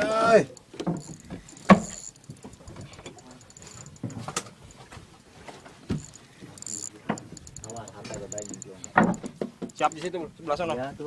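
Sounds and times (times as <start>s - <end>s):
fishing reel clicking: 0.0s - 4.9s, 5.9s - 10.2s
sharp knocks and bumps: 7.0s - 9.9s.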